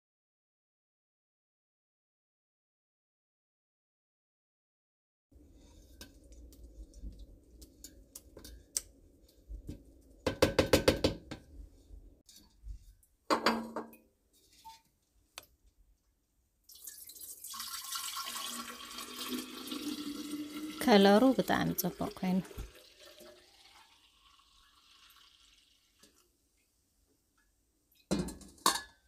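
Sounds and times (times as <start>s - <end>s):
juice pouring into pitcher: 16.7s - 26.3s
metal kitchenware clattering: 28.1s - 29.0s.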